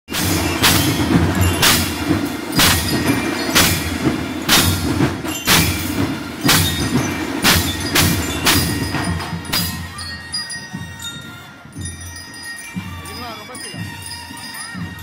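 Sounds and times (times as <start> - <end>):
bell lyres ringing: 0.1 - 15.0
drum beat: 0.1 - 15.0
marching band playing: 0.1 - 15.0.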